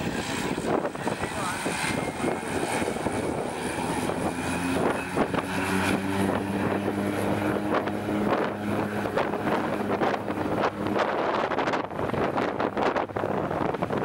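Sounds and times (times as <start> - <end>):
propeller drone: 0.0 - 14.0.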